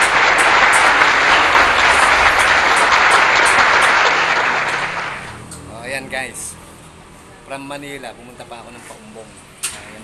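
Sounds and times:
loud steady rushing noise: 0.0 - 6.8.

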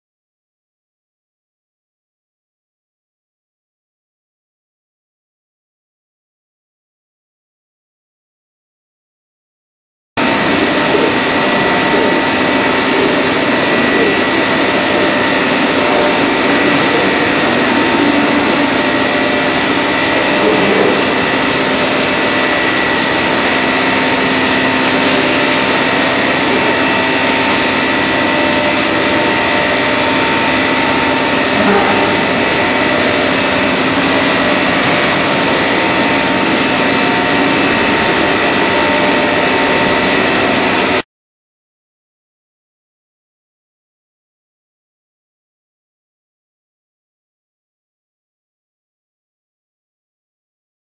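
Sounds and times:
machine whirring with high hum: 10.2 - 41.0.

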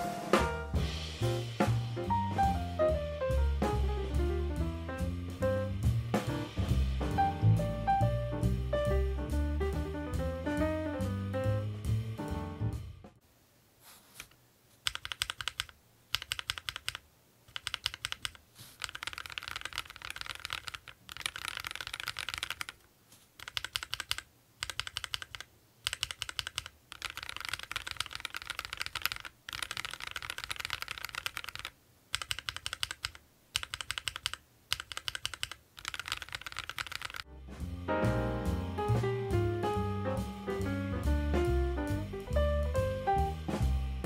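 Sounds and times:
mechanical keyboard typing: 14.8 - 37.2.

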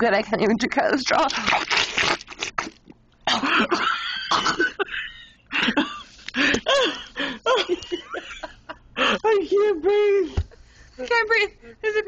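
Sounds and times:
person coughing: 3.2 - 4.9, 5.6 - 8.2.

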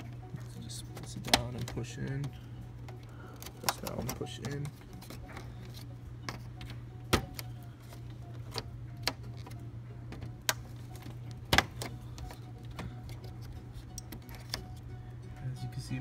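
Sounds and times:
steady low hum: 0.0 - 16.0
plastic clips clicking: 0.9 - 5.4.

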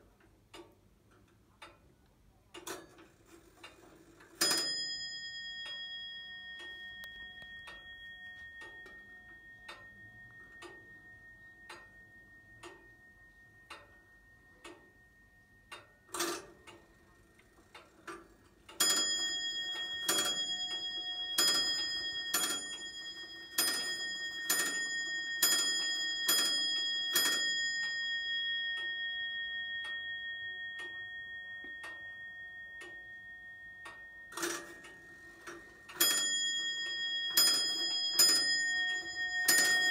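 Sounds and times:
clock movement clicks: 0.0 - 12.0, 15.6 - 29.0, 33.7 - 39.9
wall clock ticking: 0.0 - 39.9
clock bell striking: 4.4 - 17.0, 18.8 - 39.9.

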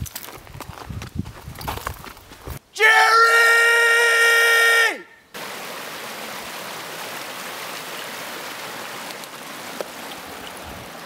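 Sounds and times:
water rushing: 4.3 - 11.0.

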